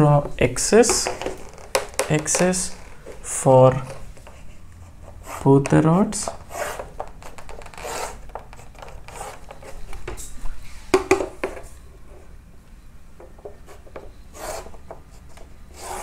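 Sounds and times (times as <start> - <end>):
ruler rubbing against board: 3.9 - 9.9, 13.6 - 16.0
chalk scraping on chalkboard: 6.2 - 6.9, 7.6 - 8.2, 9.1 - 9.8, 13.6 - 16.0.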